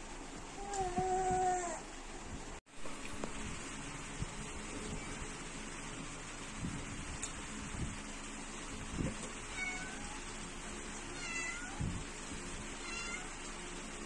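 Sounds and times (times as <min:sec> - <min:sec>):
steady low hum: 0:00.0 - 0:14.0
cat meowing: 0:11.2 - 0:11.8, 0:12.8 - 0:13.3.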